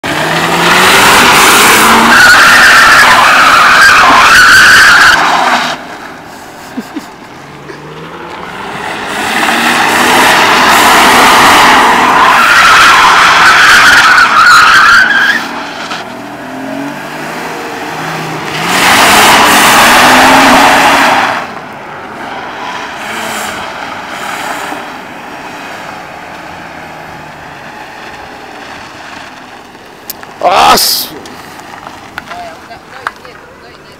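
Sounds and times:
car engine revving: 0.0 - 33.9
tyres screeching: 0.2 - 5.8, 8.9 - 21.4.

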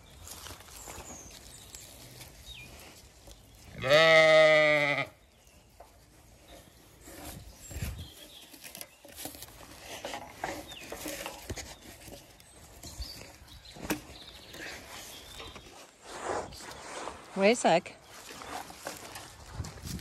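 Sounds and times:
sheep bleating loudly: 3.7 - 5.1
twine rustling and clicking: 5.7 - 15.8.

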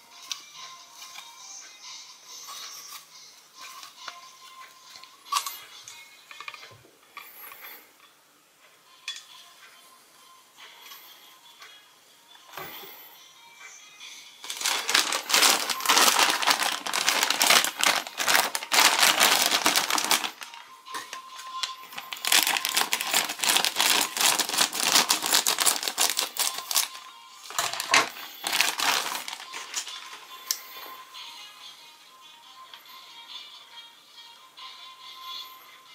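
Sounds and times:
plastic bag crinkling: 14.4 - 30.2.

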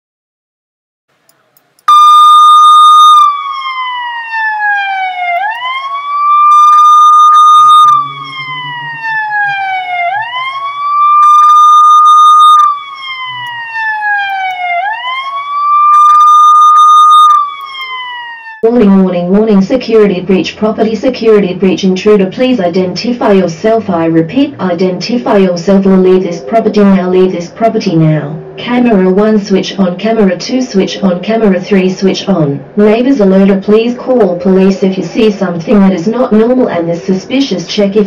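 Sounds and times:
police siren wailing: 1.9 - 18.8.

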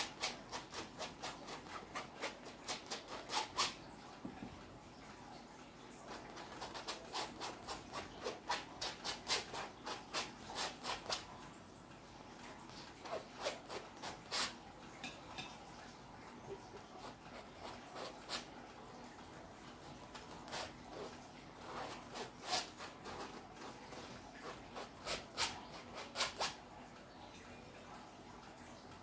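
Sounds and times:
paintbrush scrubbing canvas: 6.1 - 11.2, 12.7 - 14.6, 16.8 - 18.5, 20.0 - 26.6.

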